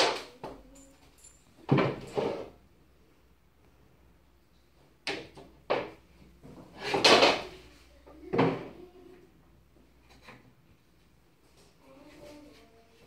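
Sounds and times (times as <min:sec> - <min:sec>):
wooden boards bumping and scraping: 0:05.7 - 0:07.5.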